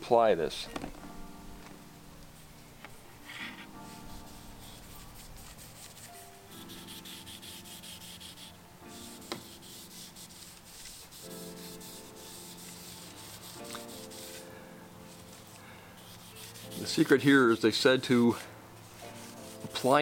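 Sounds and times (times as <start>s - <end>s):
soft background music: 0.0s - 20.0s
cloth rubbing on wooden rim: 3.3s - 14.4s, 15.1s - 17.6s, 18.3s - 20.0s.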